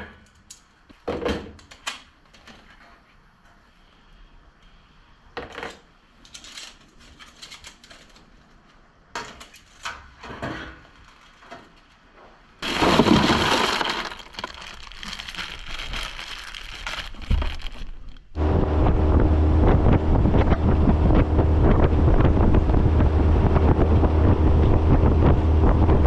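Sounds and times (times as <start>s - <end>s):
ice cubes pouring and rattling: 12.6s - 18.3s.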